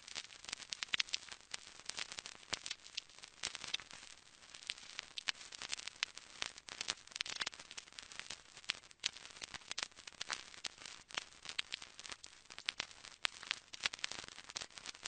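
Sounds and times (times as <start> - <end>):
sharp clicks and pops: 0.6 - 1.3, 1.9 - 4.0, 4.6 - 7.8, 8.6 - 15.0.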